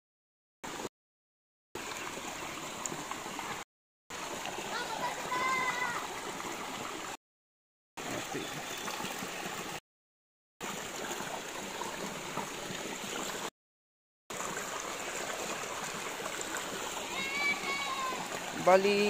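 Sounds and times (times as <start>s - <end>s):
creek water gurgling over rocks: 1.8s - 7.2s, 8.0s - 9.8s, 10.6s - 13.5s, 14.3s - 19.0s.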